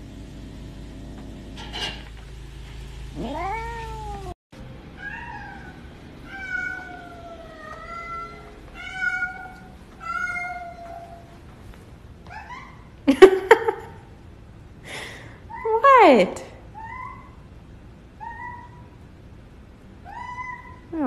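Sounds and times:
cat meowing: 3.2 - 4.4, 5.0 - 11.3, 12.3 - 12.9, 18.2 - 19.0, 20.0 - 20.9.

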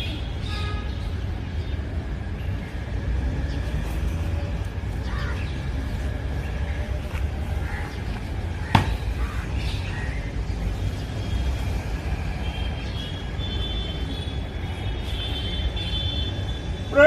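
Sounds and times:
boot stamp on paving: 8.7 - 9.0.

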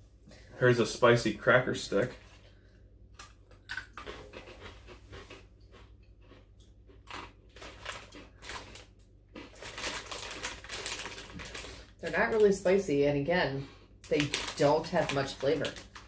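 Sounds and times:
cracker sticks crunching: 3.2 - 12.9, 14.0 - 16.0.

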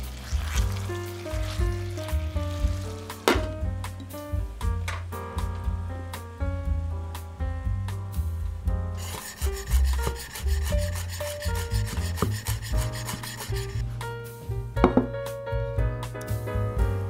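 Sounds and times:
background music: 0.0 - 17.0
knife chopping on wooden board: 9.0 - 13.8.

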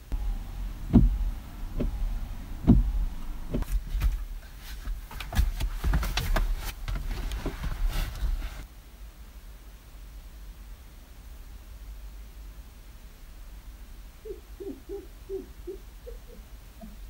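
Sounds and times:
dull thumps in car cabin: 0.9 - 8.4.

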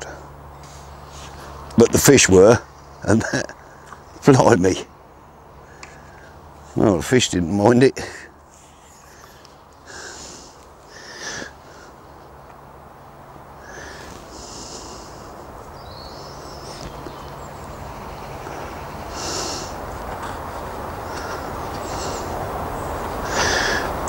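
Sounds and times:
low steady rush: 0.0 - 24.0
man sniffing and breathing: 8.1 - 12.2, 13.6 - 15.5, 18.4 - 24.0.

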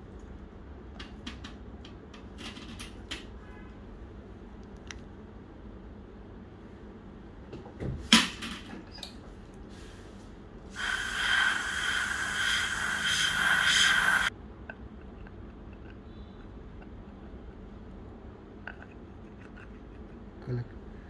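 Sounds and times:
dental air syringe hissing: 10.7 - 14.3.

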